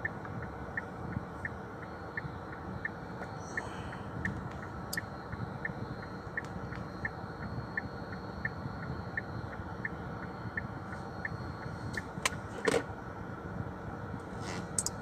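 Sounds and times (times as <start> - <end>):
indicator relay ticking: 0.0 - 3.1, 4.2 - 12.1
car cabin hum: 0.0 - 15.0.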